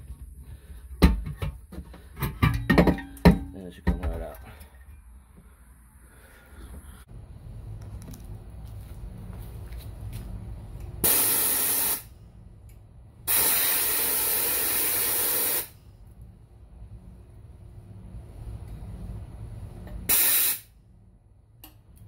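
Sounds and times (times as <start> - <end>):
compressed air blasts: 11.0 - 12.1, 13.2 - 15.8, 20.1 - 20.8.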